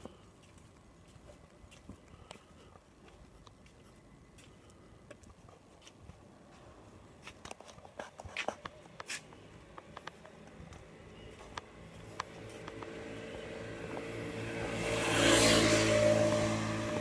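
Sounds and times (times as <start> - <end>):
quiet street background: 0.0 - 17.0
faint clicks and taps: 7.3 - 12.9.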